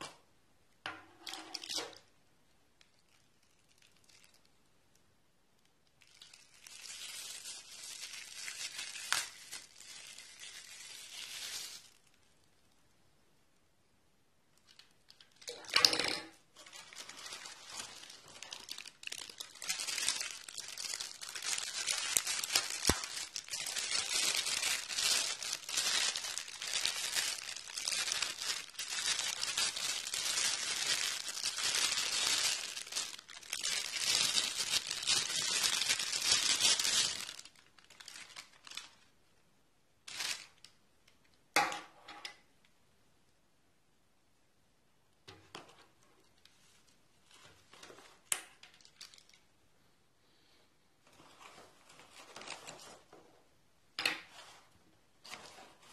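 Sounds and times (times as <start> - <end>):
plastic bag crinkling: 2.8 - 4.6, 5.8 - 12.6, 14.6 - 39.1, 40.1 - 40.8, 45.8 - 49.5, 51.1 - 53.3, 54.2 - 55.9.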